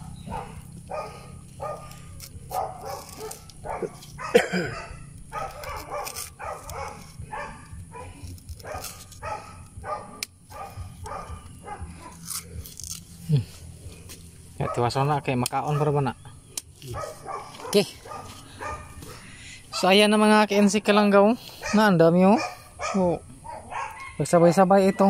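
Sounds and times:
dog barking: 0:00.0 - 0:12.2, 0:14.6 - 0:14.9, 0:15.6 - 0:16.0, 0:16.9 - 0:19.2, 0:21.6 - 0:24.6.

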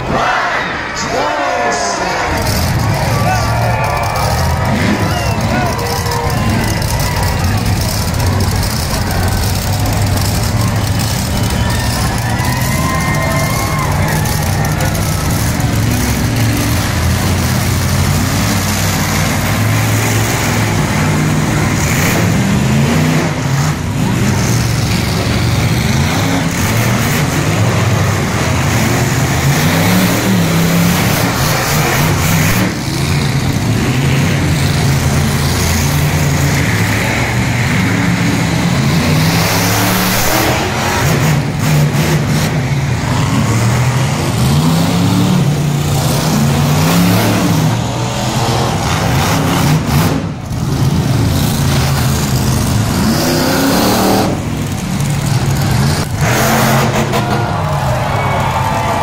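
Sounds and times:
monster truck engine revving: 0:00.0 - 0:59.0.

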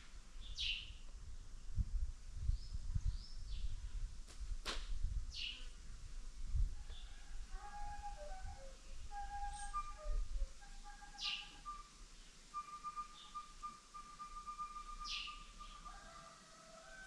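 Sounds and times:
flute playing long notes: 0:07.5 - 0:16.2
bird calls sweeping downward: 0:07.6 - 0:11.9, 0:12.6 - 0:15.9.

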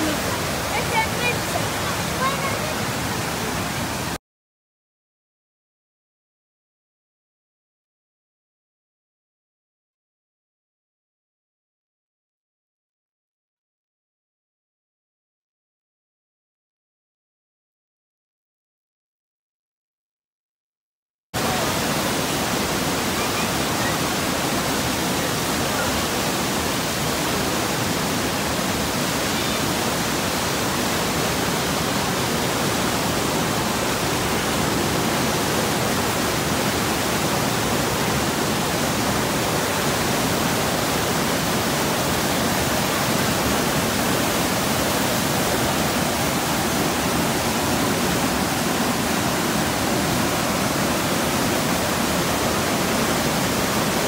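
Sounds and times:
water rushing over rocks: 0:00.0 - 0:04.2, 0:21.4 - 0:54.0.

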